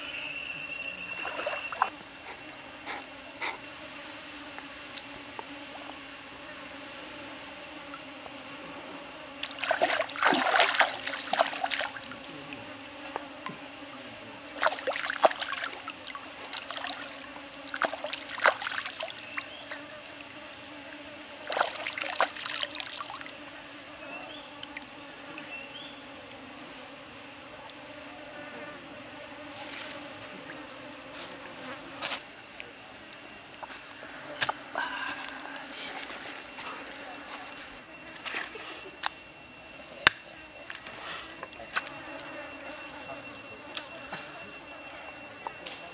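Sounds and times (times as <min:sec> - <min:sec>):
insect drone: 0:00.0 - 0:45.9
water splashing: 0:09.4 - 0:12.2, 0:14.6 - 0:19.8, 0:21.4 - 0:23.3.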